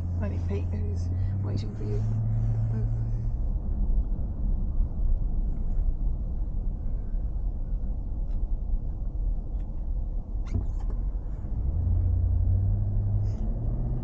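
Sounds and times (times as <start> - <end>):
car engine: 0.0 - 14.0
road rumble: 0.0 - 14.0.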